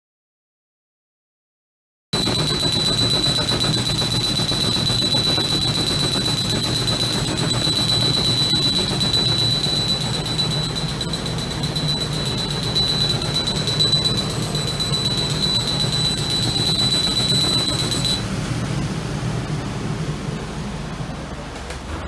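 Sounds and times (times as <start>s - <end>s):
laser cutter high-pitched whine: 2.2s - 21.2s
fans and air hum and hiss: 11.3s - 22.0s.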